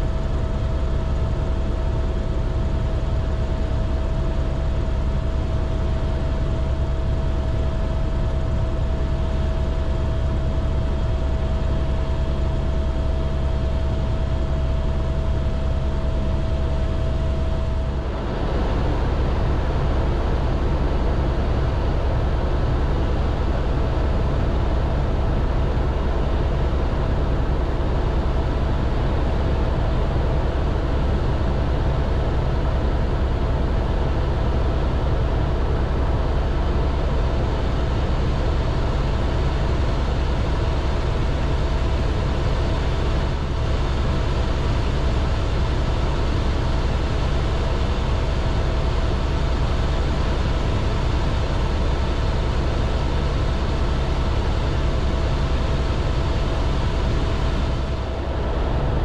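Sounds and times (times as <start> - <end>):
turbine whine: 0.0 - 28.7, 46.9 - 59.0
helicopter rotor rumble: 0.0 - 59.0.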